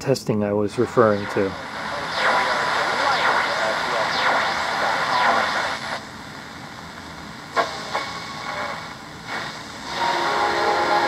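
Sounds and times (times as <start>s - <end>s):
steady held radio tones: 0.6s - 6.8s, 7.4s - 11.0s
radio static: 0.8s - 6.5s, 7.5s - 9.8s
radio tuning clicks: 0.8s - 9.7s
sweeping radar chirps: 1.0s - 6.0s.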